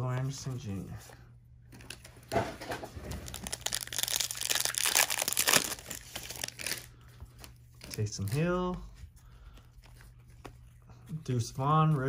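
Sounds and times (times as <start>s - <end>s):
plastic wrapper crinkling and tearing: 3.0s - 8.8s.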